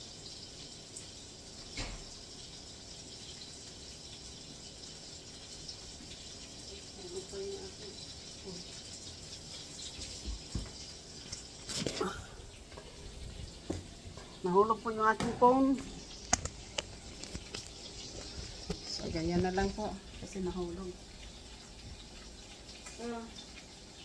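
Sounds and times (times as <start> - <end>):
food sizzling in a frying pan: 0.0 - 24.0.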